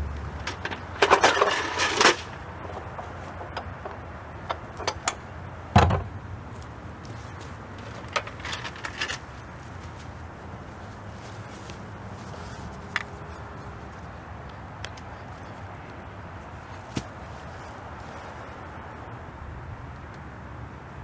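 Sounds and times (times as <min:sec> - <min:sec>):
metal clattering and knocking: 0:00.4 - 0:05.2.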